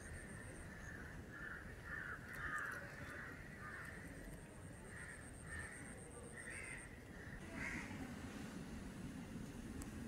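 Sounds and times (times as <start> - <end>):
crows cawing: 0.7 - 4.0, 4.9 - 7.9.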